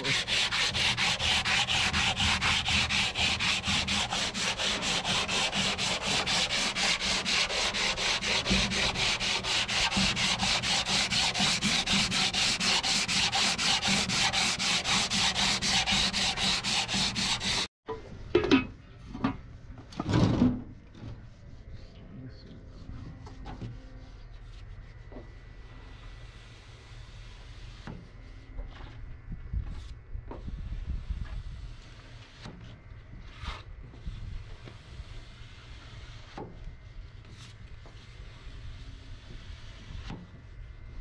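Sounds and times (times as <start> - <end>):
knocks and scrapes: 0.0 - 17.7
sandpaper rasping on filler: 0.0 - 17.7.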